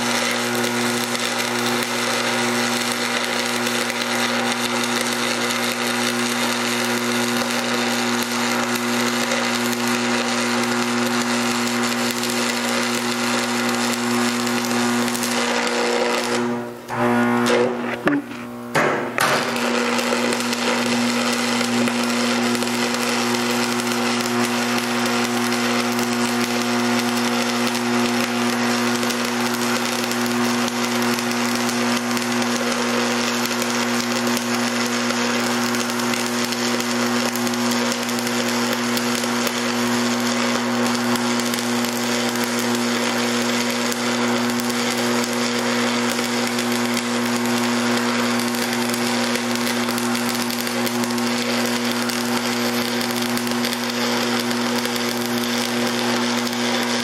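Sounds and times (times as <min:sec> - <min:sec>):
welding arc crackling sizzle: 0:00.0 - 0:57.0
steady hum: 0:16.6 - 0:19.4.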